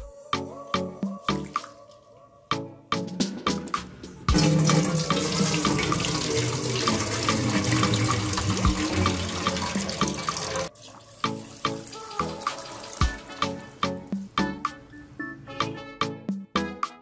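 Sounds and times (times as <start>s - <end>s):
water running from tap: 4.3s - 14.3s.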